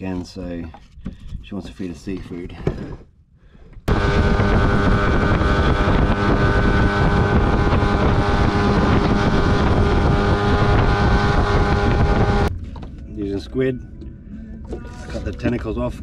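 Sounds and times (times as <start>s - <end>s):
rushing wind: 3.8s - 12.6s
water noise: 3.9s - 13.1s, 13.7s - 16.0s
outboard motor running: 3.9s - 16.0s.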